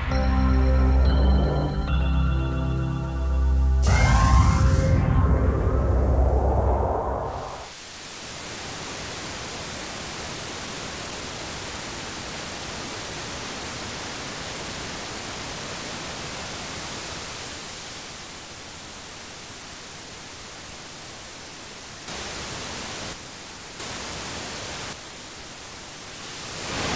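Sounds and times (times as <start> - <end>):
music: 0.0 - 6.4
static hiss: 6.2 - 26.9.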